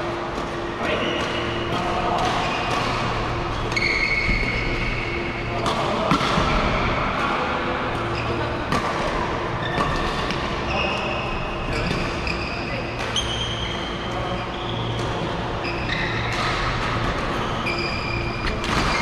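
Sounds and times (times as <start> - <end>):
steady hum: 0.0 - 19.0
racket hitting shuttlecock: 0.4 - 6.7, 8.7 - 10.6, 12.9 - 13.4, 16.2 - 17.5, 18.2 - 19.0
shoes squeaking on court: 0.5 - 5.6, 9.5 - 11.1, 11.7 - 19.0.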